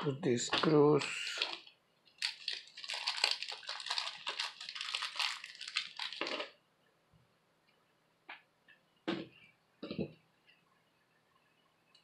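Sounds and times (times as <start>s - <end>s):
crinkling rustle: 0.6s - 6.6s.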